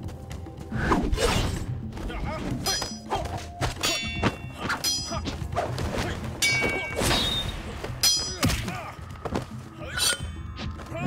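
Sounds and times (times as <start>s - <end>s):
metallic sword clangs: 3.8s - 5.2s, 6.4s - 8.7s.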